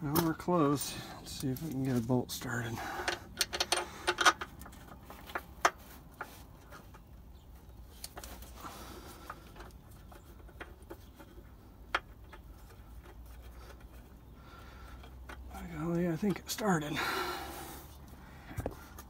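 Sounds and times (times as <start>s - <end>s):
metallic clicks of a bolt: 3.0s - 4.7s.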